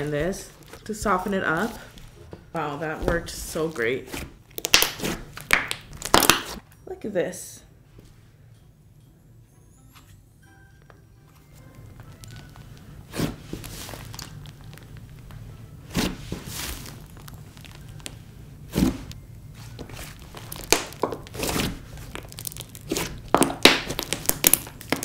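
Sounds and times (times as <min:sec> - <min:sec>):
slime squelching and popping: 0:04.1 - 0:06.6, 0:15.9 - 0:19.1, 0:19.8 - 0:25.0.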